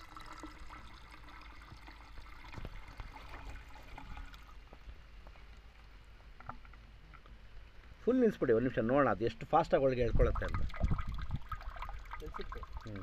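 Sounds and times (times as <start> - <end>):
water trickling and gurgling: 0.0 - 4.8, 9.9 - 13.0.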